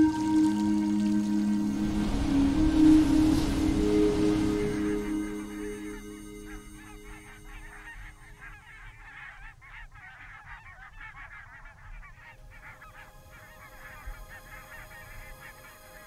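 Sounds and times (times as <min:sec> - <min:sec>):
low rumble: 0:00.0 - 0:08.6
flock of birds honking: 0:00.0 - 0:16.0.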